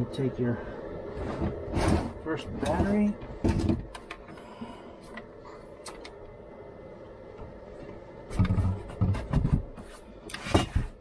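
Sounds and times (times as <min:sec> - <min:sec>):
heavy thumps and knocks: 0:08.3 - 0:09.9.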